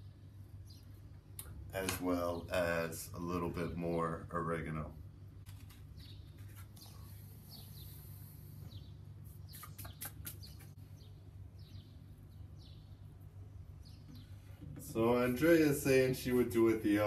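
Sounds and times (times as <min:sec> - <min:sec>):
low steady hum: 0:00.0 - 0:17.0
small birds chirping: 0:00.0 - 0:17.0
dried herbs rubbed between palms: 0:14.4 - 0:16.6.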